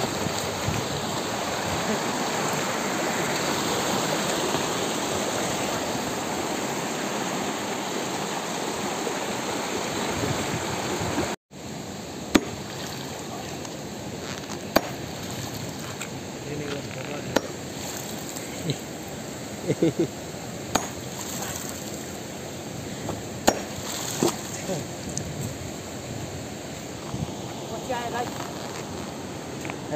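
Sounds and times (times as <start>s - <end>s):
stream rushing over rocks: 0.0s - 29.9s
hammer striking rock: 12.3s - 12.8s, 14.7s - 15.1s, 17.3s - 17.6s, 20.7s - 21.1s, 23.4s - 24.4s.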